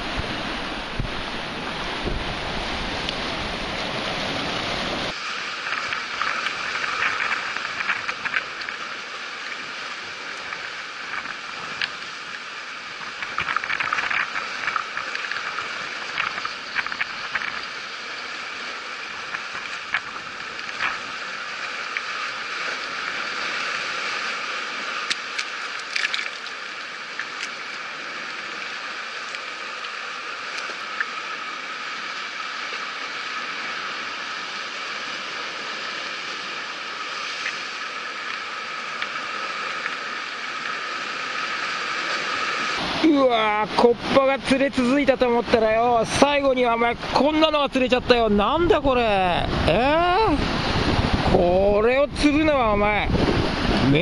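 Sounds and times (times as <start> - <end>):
waves splashing on rocks: 0.0 - 54.0.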